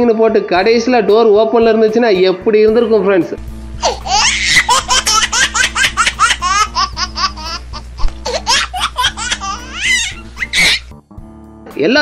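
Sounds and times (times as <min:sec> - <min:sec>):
low background music: 0:00.0 - 0:12.0
high-pitched laughs: 0:03.8 - 0:10.9.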